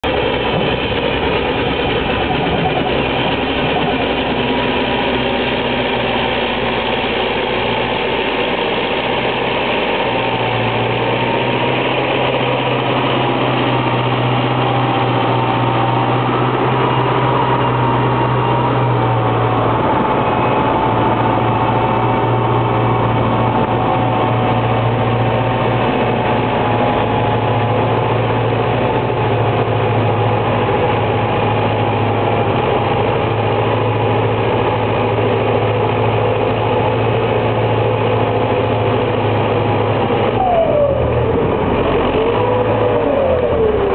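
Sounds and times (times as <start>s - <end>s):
low hum: 0.0s - 43.9s
tractor diesel engine under load: 0.0s - 43.9s.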